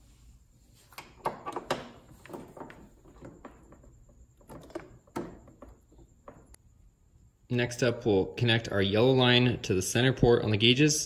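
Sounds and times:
hoses being handled: 0.0 - 6.6.

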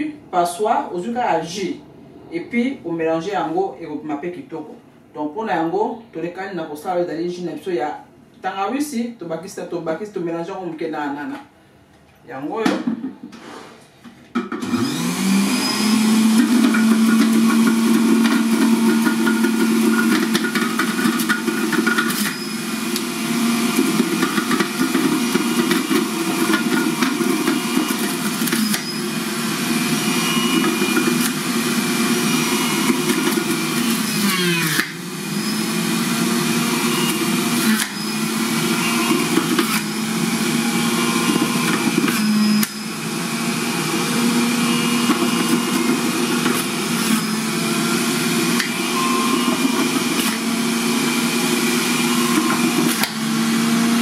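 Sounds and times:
juicer motor whining and grinding: 14.4 - 54.0.

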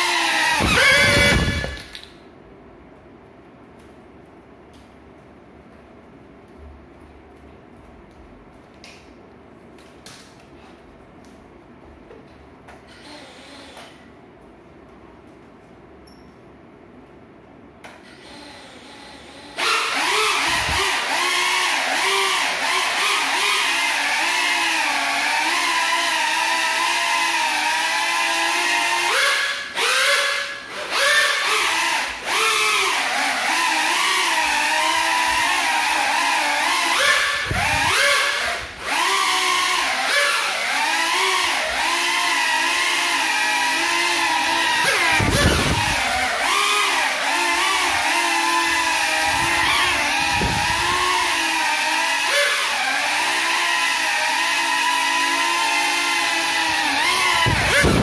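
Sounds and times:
quadcopter motors whining: 0.0 - 2.1, 18.0 - 58.0.

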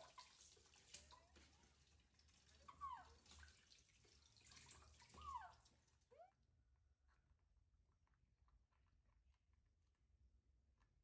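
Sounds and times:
water running into a tub: 0.0 - 6.1.

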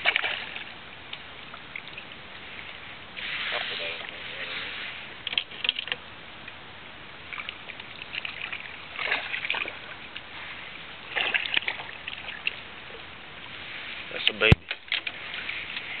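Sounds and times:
steady hiss: 2.2 - 5.3, 12.6 - 16.0
fish splashing at surface: 11.0 - 12.6.

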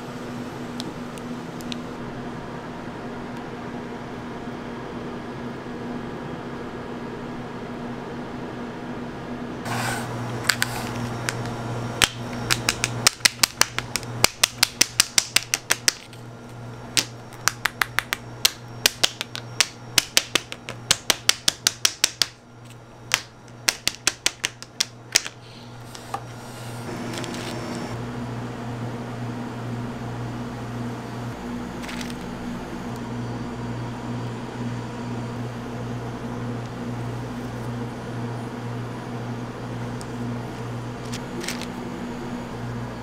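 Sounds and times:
steady low hum: 0.0 - 43.0.

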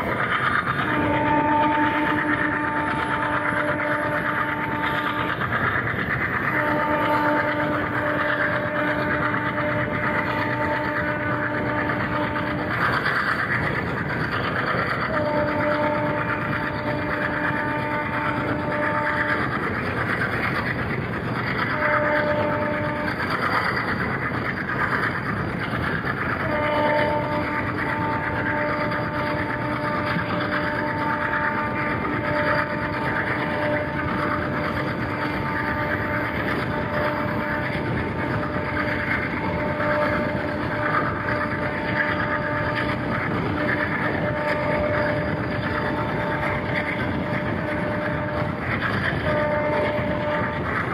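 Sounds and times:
train rumble and wheel clatter: 0.0 - 50.9
locomotive horn blasts: 0.8 - 5.5, 6.4 - 12.8, 15.0 - 19.9, 21.6 - 23.4, 26.4 - 50.9.

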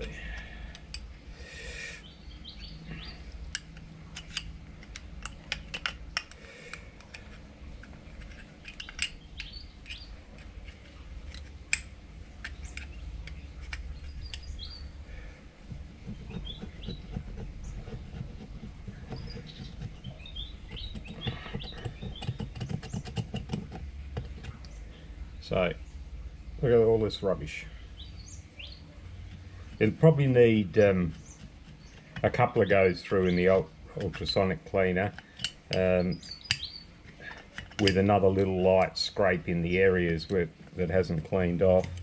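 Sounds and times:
birds chirping: 0.0 - 42.0
metal pick scraping metal bowl: 16.0 - 24.7.

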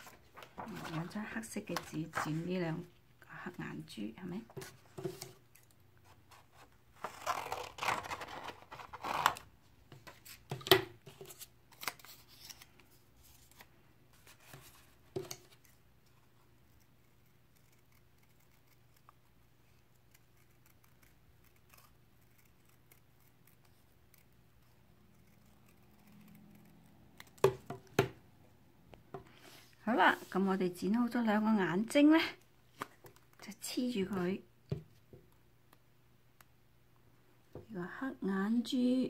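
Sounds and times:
paper rustling: 0.0 - 2.6
scissors snipping paper: 16.7 - 27.6.

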